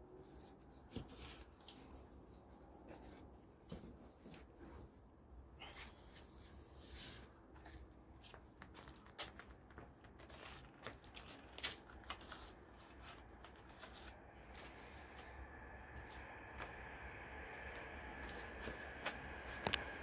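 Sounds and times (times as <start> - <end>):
plastic wrapping rustling: 8.6 - 14.8.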